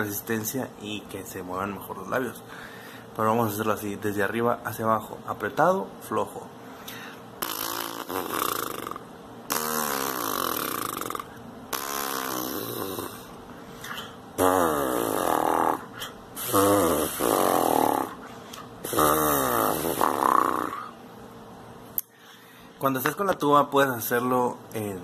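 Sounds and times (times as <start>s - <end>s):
lips buzzing into mouthpiece: 6.9s - 20.9s.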